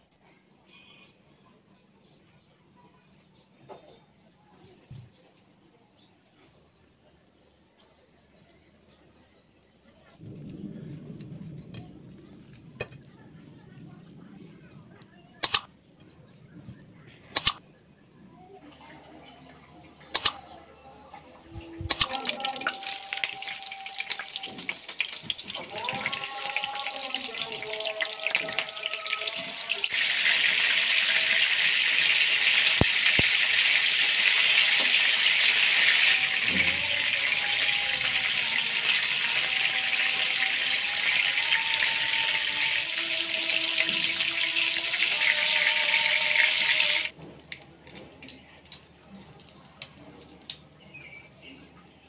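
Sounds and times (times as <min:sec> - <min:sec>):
fish sizzling in hot oil: 0:22.0 - 0:47.1.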